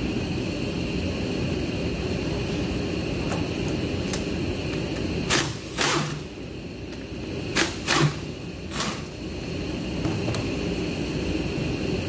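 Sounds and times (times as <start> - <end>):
steady background whir: 0.0 - 12.0.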